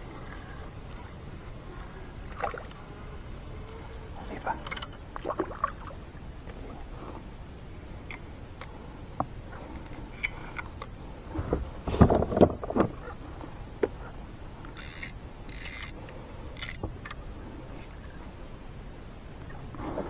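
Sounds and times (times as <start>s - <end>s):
thumps and knocks on kayak: 11.4s - 13.0s.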